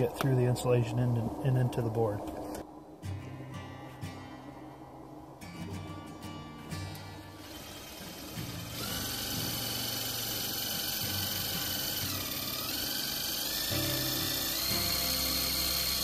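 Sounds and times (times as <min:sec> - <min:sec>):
cordless drill driving screw: 0:07.4 - 0:16.0.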